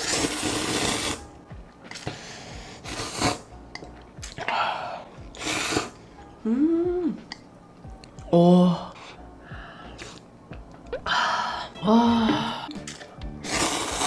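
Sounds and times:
person slurping noodles: 0.0s - 1.2s, 2.8s - 3.5s, 5.3s - 6.0s, 13.4s - 14.0s.

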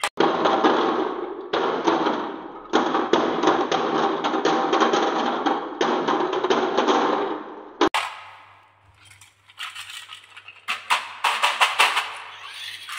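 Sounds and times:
glass marbles clattering: 8.9s - 11.2s.

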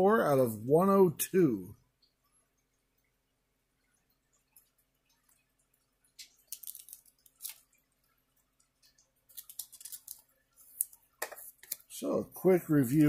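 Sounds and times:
plastic crinkling: 6.2s - 7.9s, 8.8s - 12.0s.

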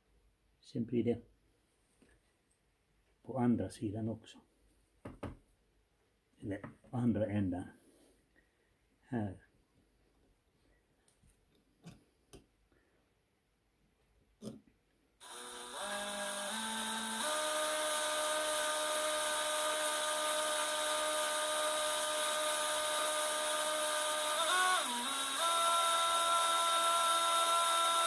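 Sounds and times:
drill motor whining: 15.2s - 28.0s.

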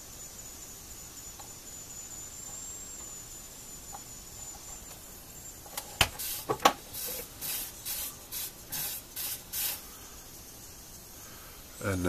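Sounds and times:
soldering iron sizzling on sponge: 6.0s - 9.8s.

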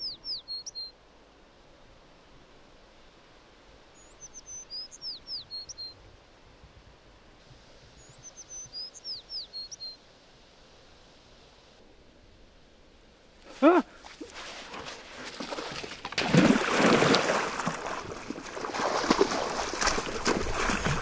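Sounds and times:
songbird whistling: 0.0s - 0.9s, 4.0s - 6.0s, 8.0s - 10.0s
faint outdoor hiss: 0.0s - 21.0s.

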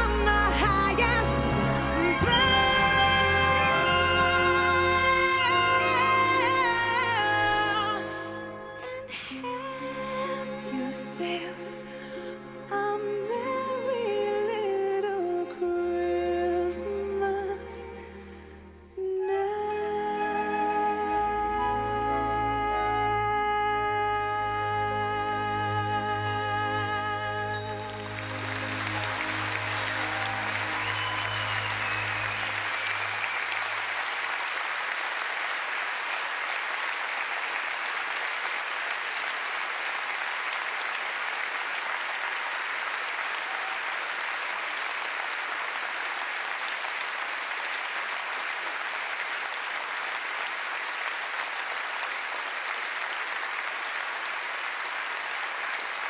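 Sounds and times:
large audience applauding: 26.6s - 56.0s.

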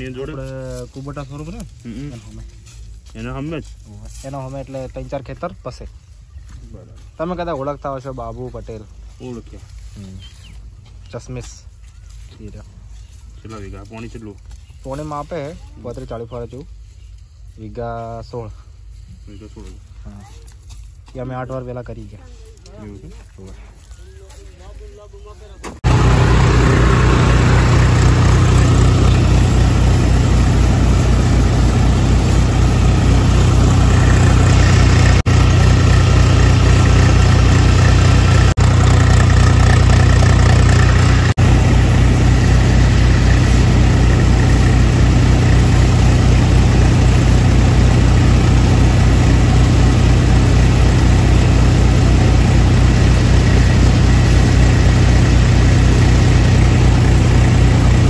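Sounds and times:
tractor engine under load: 25.4s - 58.0s
thresher drum and blower churning: 25.7s - 58.0s.

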